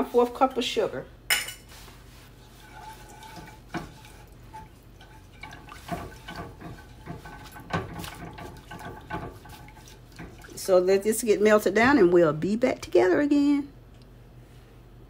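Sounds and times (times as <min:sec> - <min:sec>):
spatula stirring syrup sloshing: 0:01.7 - 0:12.2
spatula tapping and scraping pan: 0:02.4 - 0:10.6.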